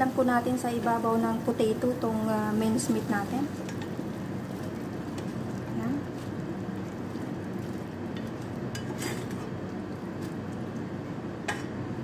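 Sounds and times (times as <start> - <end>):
steady background noise: 0.0 - 12.0
spoon scraping metal pan: 8.8 - 9.4.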